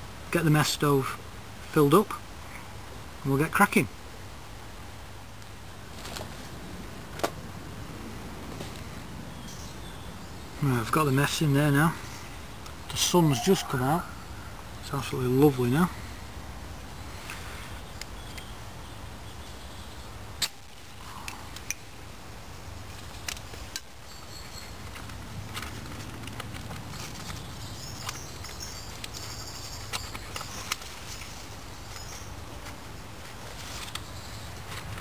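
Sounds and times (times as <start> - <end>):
outdoor background noise: 0.0 - 35.0
faint high chirping: 11.6 - 15.0.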